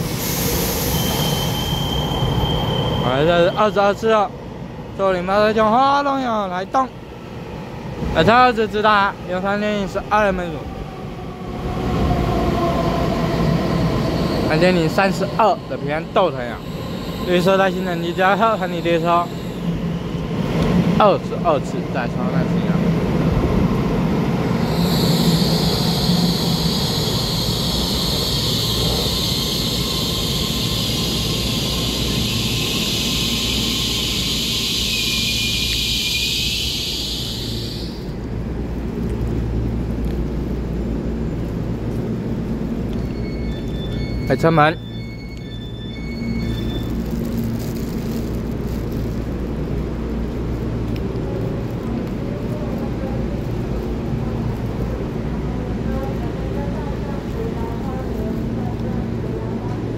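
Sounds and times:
electric train high whine: 0.0s - 4.4s, 9.6s - 39.3s, 40.6s - 59.9s
falling tone of slowing train: 0.0s - 59.9s.

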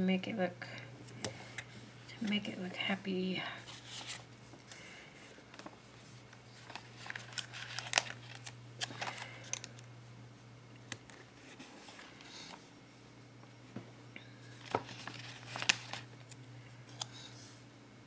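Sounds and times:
steady low hum: 0.0s - 18.0s
paper sheets rustling: 3.7s - 9.6s, 14.5s - 16.1s.

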